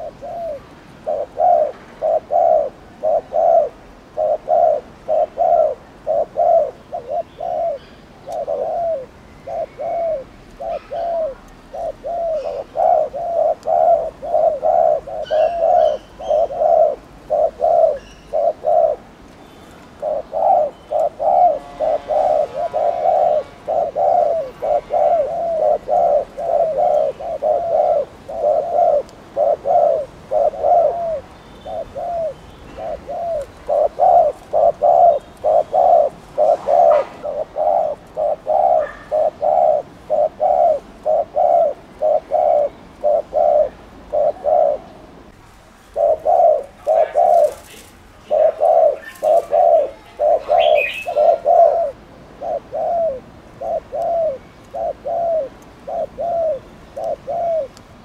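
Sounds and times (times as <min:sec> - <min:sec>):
dove cooing: 0:00.0 - 0:19.2, 0:19.8 - 0:57.8.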